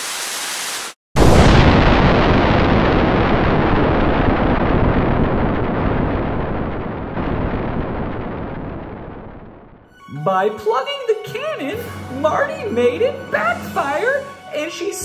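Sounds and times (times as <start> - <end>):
cartoon cannon blast with rumble: 1.2 - 9.9.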